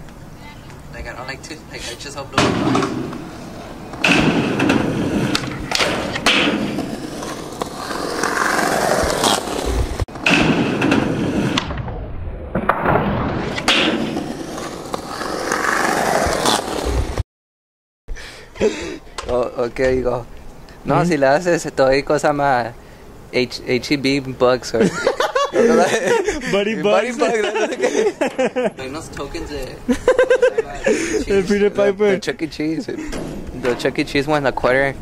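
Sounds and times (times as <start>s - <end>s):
skateboard wheels rolling on concrete: 0.0s - 17.2s
skateboard slamming down: 2.3s - 3.3s, 3.9s - 17.2s.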